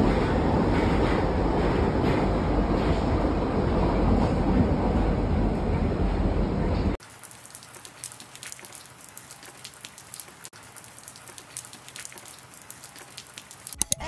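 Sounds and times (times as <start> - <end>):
metro train rumble: 0.0 - 7.0
light rain on wet pavement: 7.0 - 13.8.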